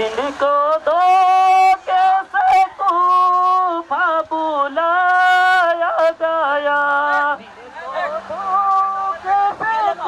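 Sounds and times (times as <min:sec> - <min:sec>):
person singing slow chant: 0:00.0 - 0:07.4.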